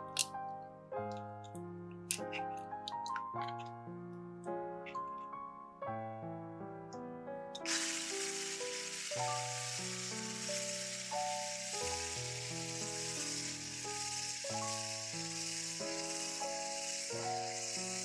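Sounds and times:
background music: 0.0s - 18.0s
electric mixer whisking: 7.6s - 18.0s.

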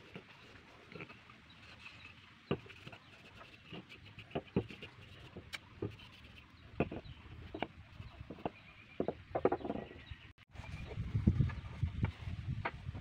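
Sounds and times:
wooden parts knocking together: 6.8s - 10.0s.

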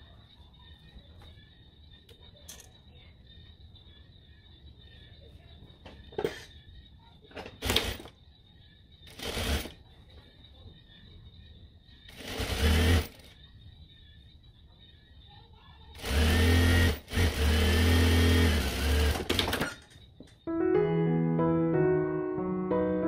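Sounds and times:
sewing machine stitching: 9.1s - 9.8s, 12.1s - 13.3s, 16.0s - 19.8s.

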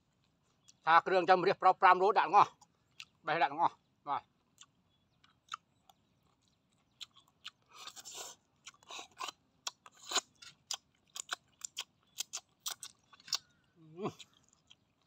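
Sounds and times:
smacking chewing clicks: 4.4s - 15.0s.

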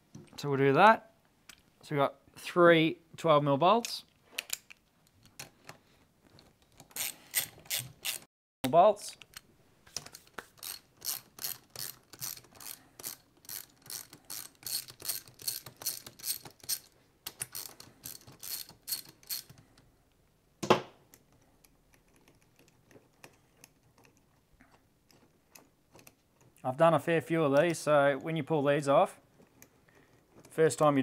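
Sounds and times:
ratchet wrench clicking: 6.9s - 8.2s, 10.6s - 19.6s.

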